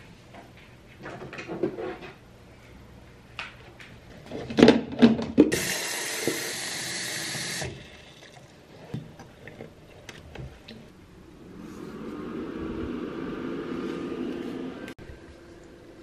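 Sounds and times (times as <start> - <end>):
tap water running into tank: 5.5 - 9.6.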